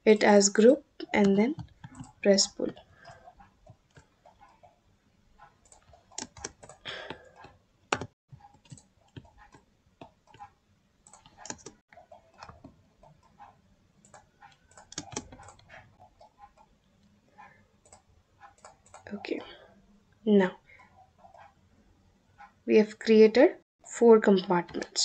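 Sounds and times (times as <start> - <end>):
keyboard keys clicking: 1.1 - 2.2, 5.4 - 13.3, 14.0 - 16.7, 17.8 - 19.1
computer mouse clicking: 1.1 - 4.8, 5.4 - 16.7, 17.4 - 19.2, 20.8 - 21.6.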